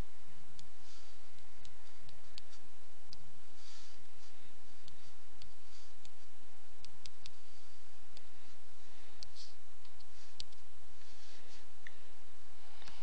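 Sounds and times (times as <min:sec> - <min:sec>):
background hiss and low hum: 0:00.0 - 0:13.0.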